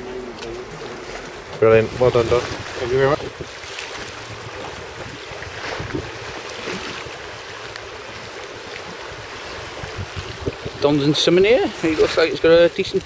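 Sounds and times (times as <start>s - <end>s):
sea water lapping against stone: 0.0s - 13.0s.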